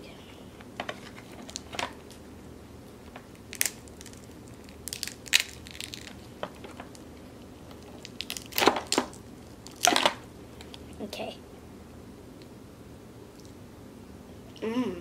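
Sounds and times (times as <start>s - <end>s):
crab shell cracking: 3.3s - 7.0s, 7.7s - 10.8s.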